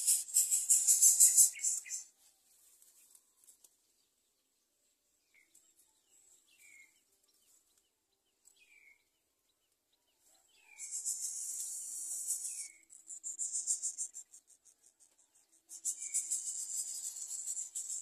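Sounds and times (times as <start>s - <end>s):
nestlings begging hiss: 0.0s - 2.0s, 10.8s - 12.8s.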